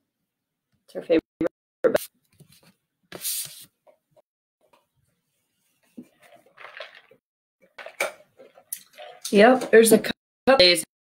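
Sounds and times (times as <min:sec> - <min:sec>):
plastic cup handling: 0:05.8 - 0:07.2.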